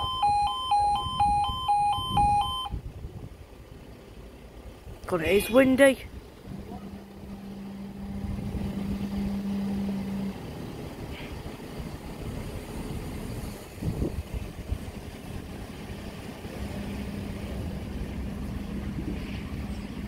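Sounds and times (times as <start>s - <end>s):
wind buffeting microphone: 0.0s - 5.4s, 6.0s - 20.0s
diesel engine running: 0.0s - 20.0s
steady hum: 6.2s - 20.0s.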